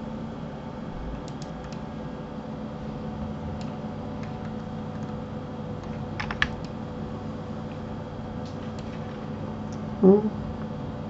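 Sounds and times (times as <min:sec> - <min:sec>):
steady electrical hum: 0:00.0 - 0:11.0
faint computer keyboard clicks: 0:01.2 - 0:01.8.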